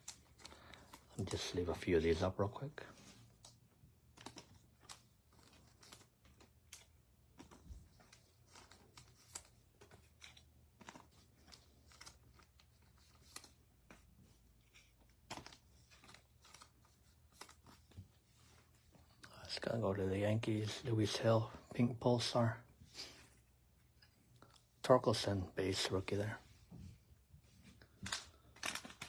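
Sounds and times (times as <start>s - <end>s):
trading cards tapping and rustling: 0.0s - 2.2s, 2.9s - 19.3s, 25.7s - 29.0s.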